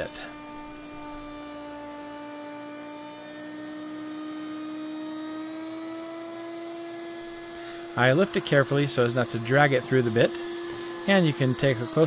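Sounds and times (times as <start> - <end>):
router whining under load: 0.0 - 12.0.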